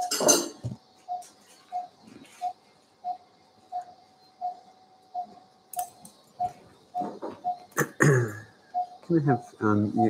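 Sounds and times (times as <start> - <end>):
monitor beeping: 1.1 - 7.7, 8.7 - 10.0.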